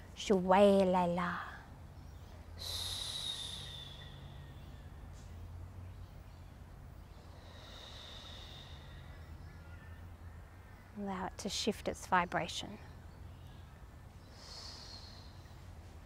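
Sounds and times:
woman's hissing breaths: 2.6s - 4.8s, 7.2s - 9.2s, 14.2s - 15.4s.

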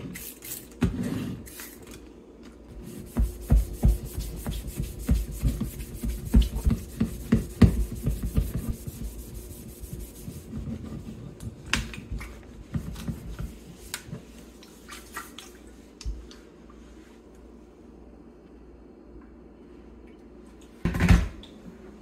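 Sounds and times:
rag wiping metal kettle: 2.7s - 11.3s.

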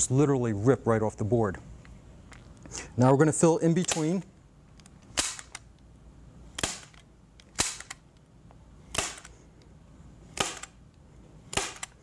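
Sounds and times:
staple gun snapping: 3.8s - 4.2s.

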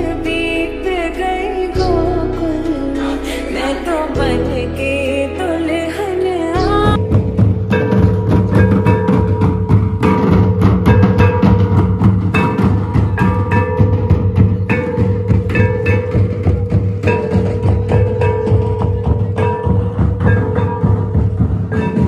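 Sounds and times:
barrel drums beaten by hand: 6.9s - 22.0s.

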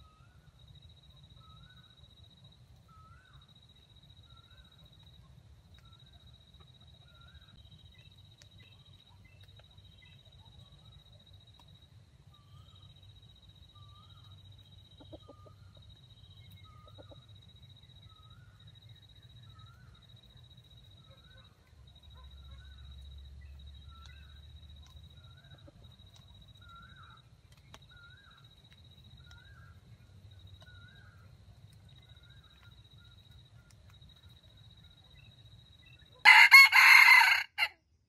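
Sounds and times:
junglefowl clucking: 15.0s - 15.6s.

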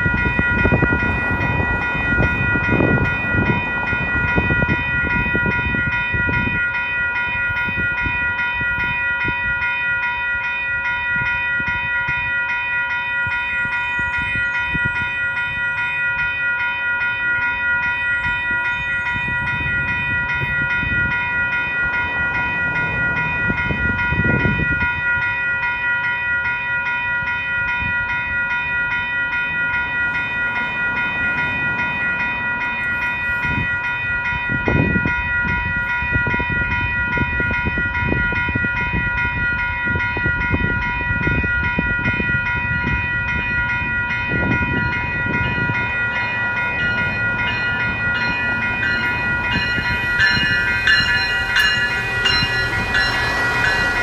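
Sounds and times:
railroad crossing bells ringing: 0.0s - 54.0s.

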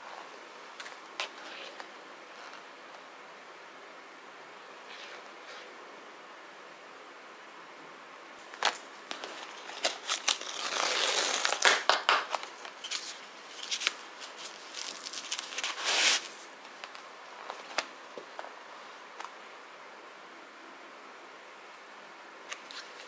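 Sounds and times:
tissues rustling from box: 12.6s - 16.4s.

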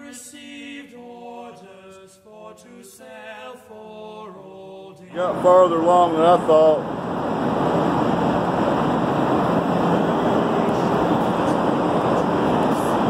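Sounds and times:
faint low hum: 5.1s - 13.0s.

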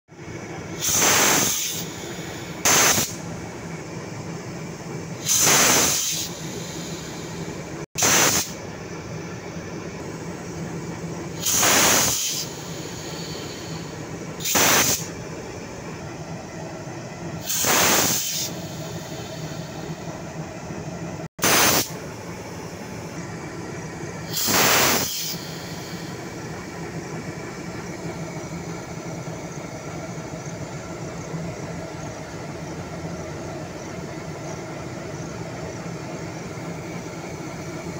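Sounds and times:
diesel locomotive idling: 0.1s - 37.9s
compressed air hissing: 0.2s - 15.4s, 17.3s - 20.2s, 21.4s - 23.3s, 24.1s - 28.0s.

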